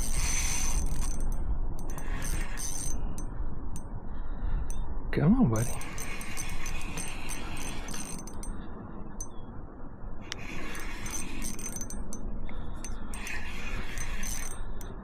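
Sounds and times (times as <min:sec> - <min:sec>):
fishing reel gears whirring: 0:00.0 - 0:03.3, 0:05.6 - 0:08.6, 0:10.3 - 0:15.0
steady low rumble: 0:00.0 - 0:15.0.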